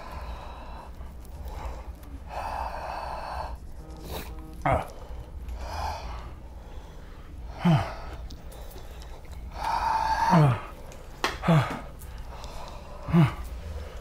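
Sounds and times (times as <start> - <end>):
man groaning in pain: 4.6 - 4.9.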